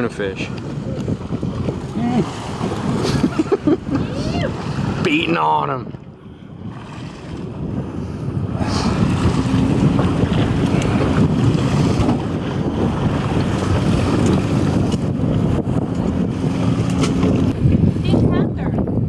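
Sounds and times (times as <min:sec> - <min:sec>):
sea wash against boat hull: 0:00.0 - 0:19.0
wind buffeting microphone: 0:00.0 - 0:19.0
low engine hum: 0:05.9 - 0:19.0.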